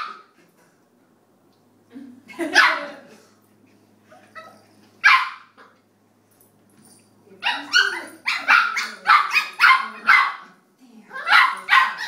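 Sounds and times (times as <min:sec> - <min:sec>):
puppy barking: 0:00.0 - 0:00.3, 0:05.0 - 0:05.7, 0:07.4 - 0:10.5, 0:11.1 - 0:12.0.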